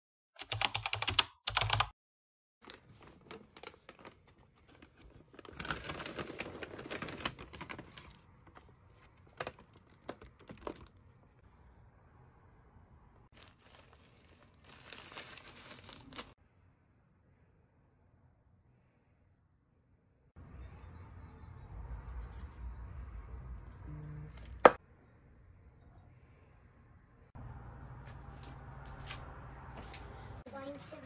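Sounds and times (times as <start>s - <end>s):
plastic bag rustling: 2.6s - 10.9s, 13.3s - 16.4s
kibble crunching in plastic bag: 13.3s - 16.4s.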